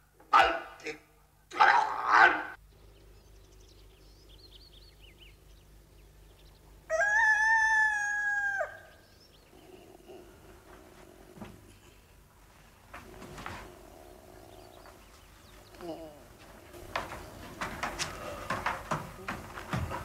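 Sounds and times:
small birds chirping: 2.5 - 12.3, 13.0 - 20.0
rooster crowing: 6.9 - 9.0.

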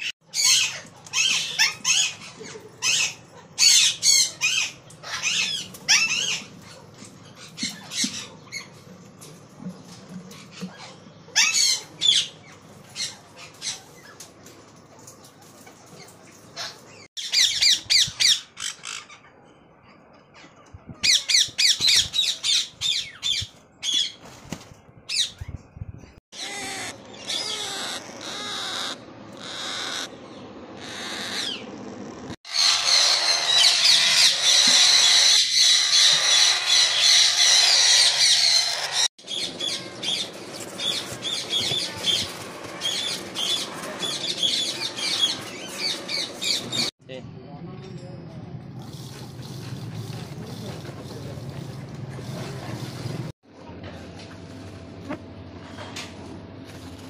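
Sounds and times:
parrot chicks squawking: 0.0 - 8.8, 10.4 - 14.3, 16.5 - 19.3, 26.4 - 46.9.

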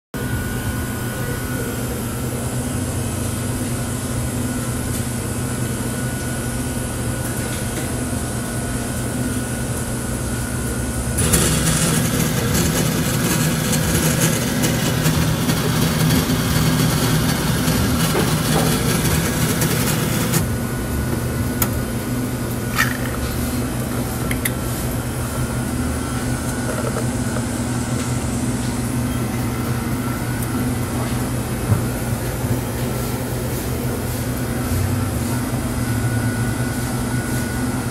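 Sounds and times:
coffee machine hum: 0.2 - 37.9
grinder milling beans: 11.1 - 20.6.

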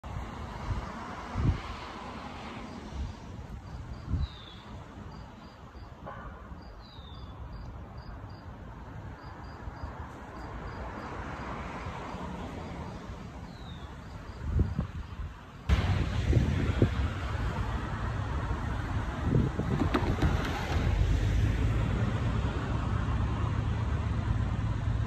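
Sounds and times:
insects chirping: 3.6 - 6.0, 6.6 - 15.7
thumps: 19.6 - 21.0.

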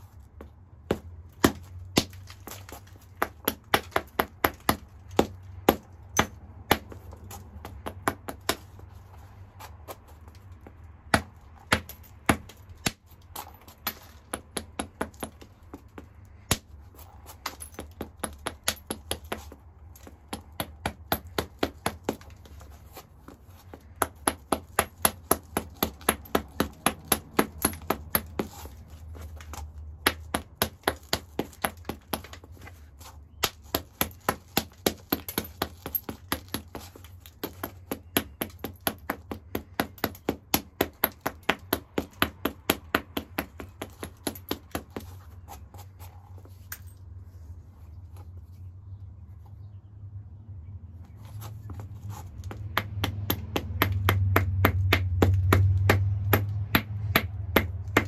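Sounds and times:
hammerstone tapping stone: 0.9 - 8.6, 11.1 - 16.7, 17.4 - 22.6, 23.7 - 28.8, 29.4 - 32.5, 33.4 - 45.5, 52.4 - 58.0.

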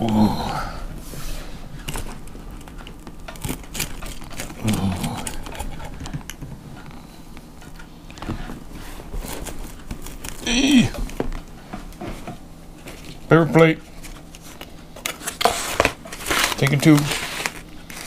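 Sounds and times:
pizza cutter crunching crust: 1.8 - 7.2, 8.1 - 11.2, 12.8 - 18.0.

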